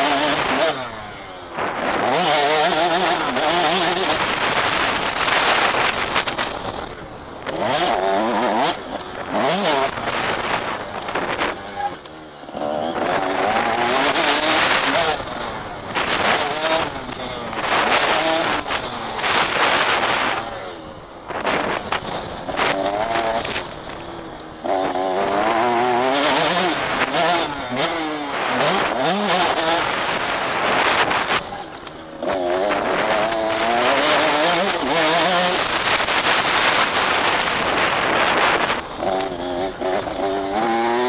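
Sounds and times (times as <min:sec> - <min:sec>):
motocross engine revving: 0:00.0 - 0:41.0
wind on microphone: 0:32.2 - 0:40.8.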